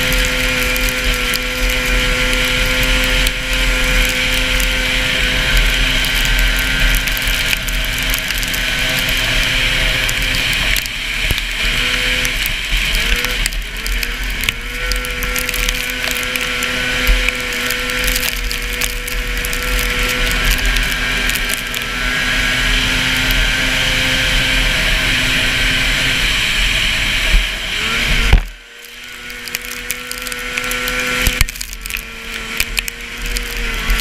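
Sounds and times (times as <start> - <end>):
snowmobile engine at high revs: 0.0 - 34.0.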